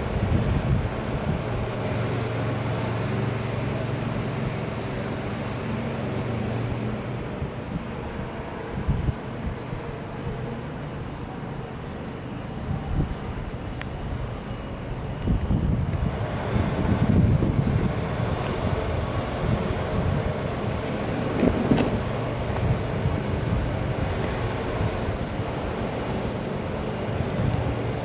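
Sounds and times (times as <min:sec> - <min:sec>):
wind on microphone: 0:00.0 - 0:02.1, 0:06.7 - 0:09.9, 0:12.6 - 0:14.3, 0:15.2 - 0:28.0
outdoor background noise: 0:00.0 - 0:28.0.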